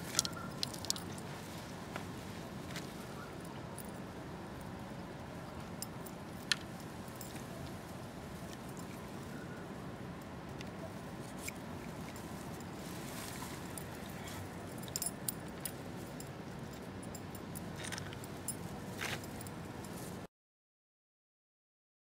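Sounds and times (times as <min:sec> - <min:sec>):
outdoor background noise: 0:00.0 - 0:20.3
short rustle: 0:11.2 - 0:14.6.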